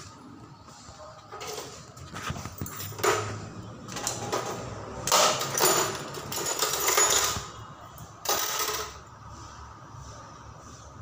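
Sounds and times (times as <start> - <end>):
metal tools rattling in box: 1.3 - 7.6.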